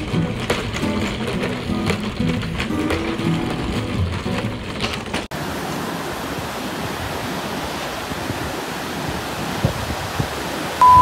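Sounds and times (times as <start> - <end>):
sea waves breaking on shore: 5.3 - 11.0.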